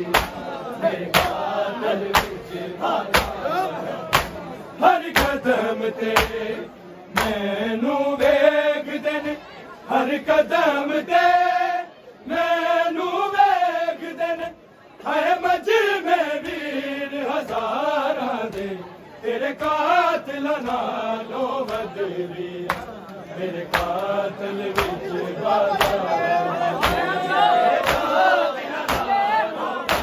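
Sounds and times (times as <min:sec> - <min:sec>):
rhythmic chest-beating: 0:00.0 - 0:08.6, 0:15.4 - 0:30.0.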